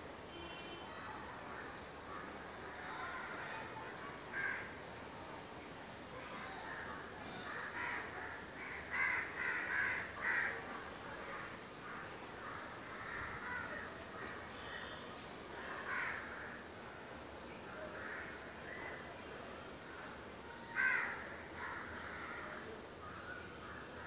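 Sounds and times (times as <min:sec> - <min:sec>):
crows cawing: 0:04.3 - 0:04.7, 0:07.4 - 0:10.6, 0:11.8 - 0:14.3, 0:15.8 - 0:16.6, 0:18.0 - 0:18.4, 0:20.7 - 0:22.6.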